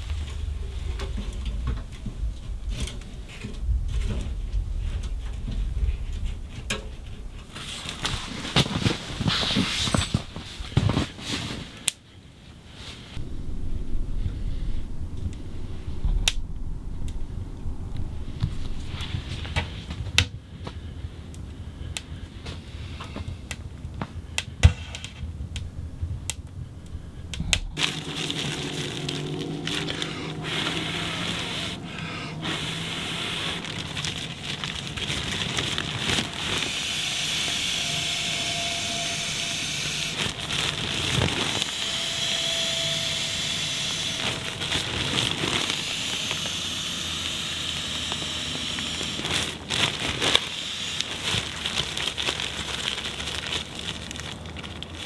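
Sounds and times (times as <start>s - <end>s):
wood stove fire crackling: 0.0s - 39.2s
sleeping pad being inflated: 7.5s - 11.8s, 27.4s - 51.8s.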